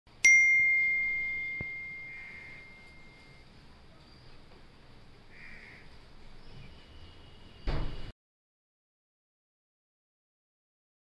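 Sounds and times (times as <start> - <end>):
high bell-like ding: 0.2 - 3.5.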